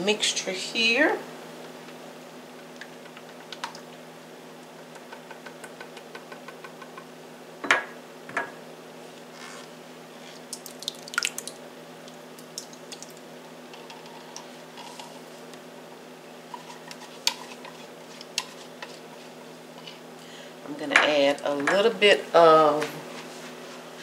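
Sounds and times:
liquid pouring and splatting: 0:10.4 - 0:11.6.

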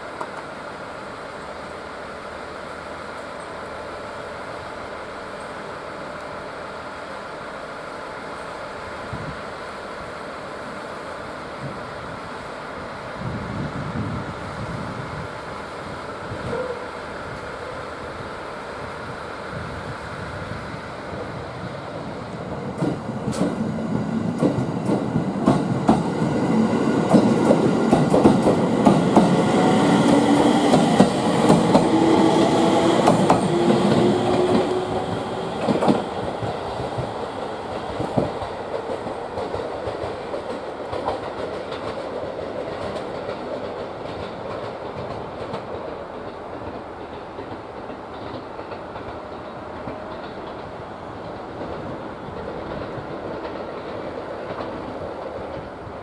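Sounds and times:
train wheels clicking over rail joints: 0:22.4 - 0:55.9.

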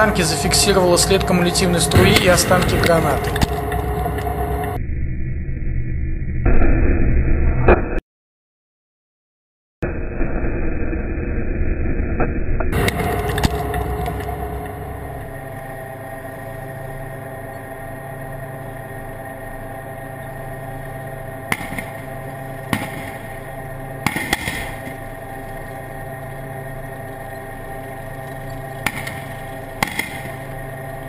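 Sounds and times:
sharp bangs: 0:00.0 - 0:04.8, 0:12.7 - 0:16.3, 0:21.4 - 0:25.8, 0:28.6 - 0:31.0
tank engine humming: 0:00.0 - 0:04.8, 0:12.7 - 0:31.0.

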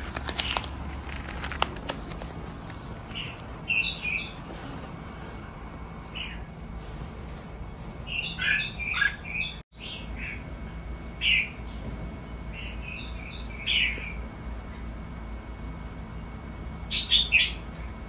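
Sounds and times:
low steady hum: 0:00.0 - 0:18.0
birds chirping: 0:01.4 - 0:06.6, 0:07.6 - 0:10.5, 0:11.2 - 0:14.9, 0:16.8 - 0:18.0.

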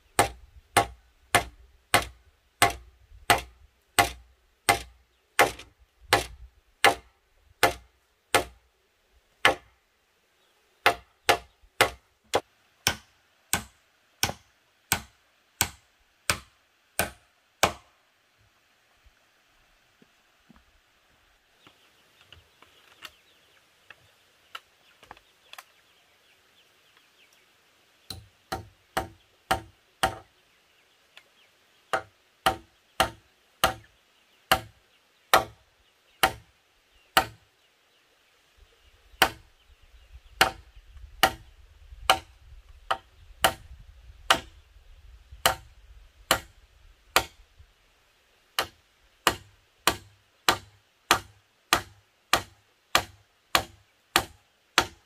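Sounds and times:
hand tool striking wooden pole: 0:00.2 - 0:08.6, 0:09.4 - 0:09.7, 0:10.8 - 0:17.9, 0:28.1 - 0:30.3, 0:41.2 - 0:41.4, 0:42.1 - 0:42.3, 0:44.3 - 0:44.5, 0:45.4 - 0:45.7, 0:46.3 - 0:46.5, 0:47.2 - 0:47.4, 0:48.6 - 0:55.0.

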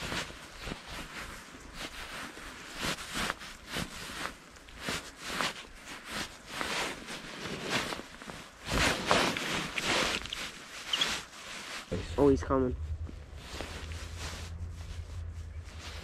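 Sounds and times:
jacket fabric rustling: 0:00.0 - 0:16.0
snow crunching: 0:00.0 - 0:16.0.

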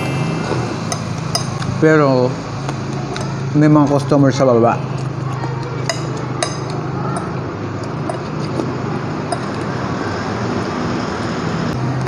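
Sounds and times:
cutlery clinking on plates: 0:05.4 - 0:09.8.

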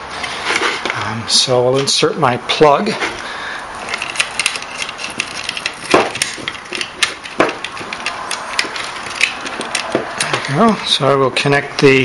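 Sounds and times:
cord handling clicks and rubbing: 0:03.0 - 0:11.0.

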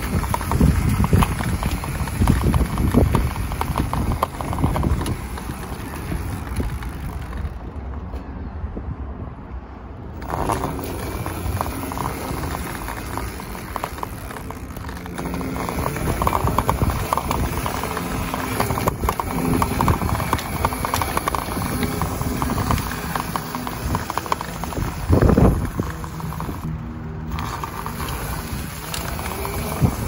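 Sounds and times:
dirt bike rattling over bumps: 0:00.0 - 0:07.9, 0:10.2 - 0:30.0
electric motor whine: 0:10.2 - 0:30.0.

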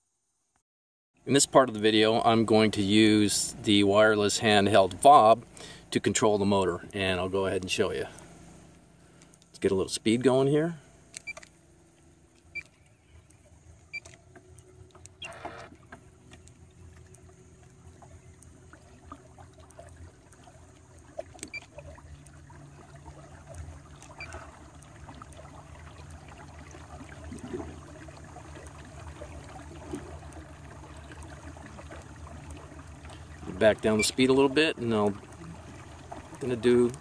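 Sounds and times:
water lapping along hull: 0:01.3 - 0:37.0
electric trolling motor hum: 0:10.9 - 0:37.0.

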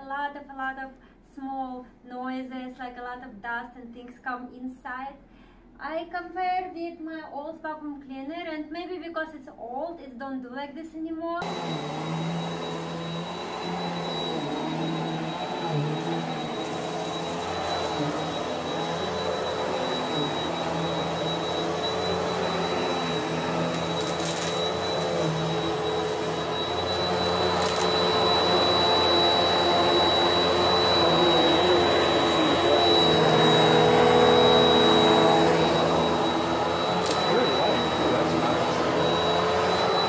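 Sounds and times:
grit crackling up vacuum: 0:11.4 - 0:40.0
vacuum cleaner running: 0:11.4 - 0:40.0.

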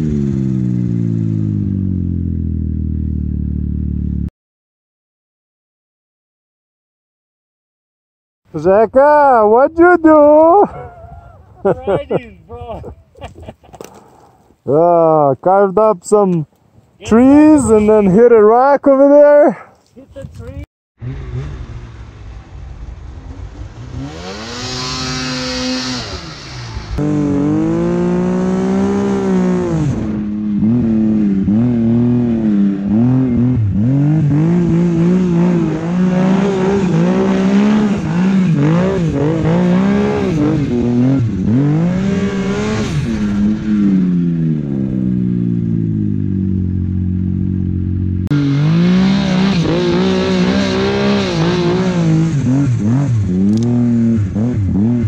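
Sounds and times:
snowmobile engine revving: 0:08.6 - 0:16.2, 0:17.0 - 0:19.4, 0:21.0 - 0:46.9, 0:48.2 - 0:55.0.

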